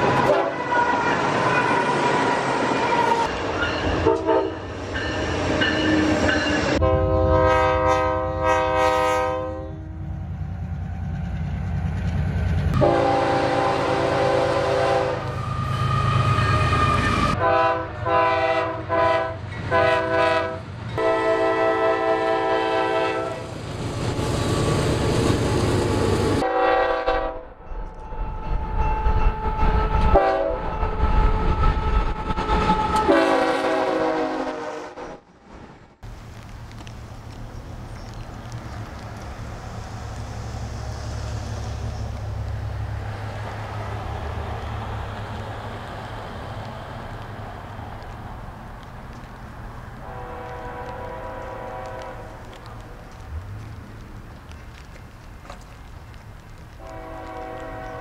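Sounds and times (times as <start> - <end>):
train wheels on rail: 0.0 - 27.1, 27.8 - 34.6, 36.0 - 58.0
diesel locomotive engine rumble: 0.0 - 34.6, 36.0 - 58.0
train air horn blasts: 0.2 - 3.3, 4.0 - 4.7, 6.7 - 10.0, 12.8 - 23.5, 26.4 - 27.5, 29.4 - 35.2, 50.0 - 52.4, 56.8 - 58.0.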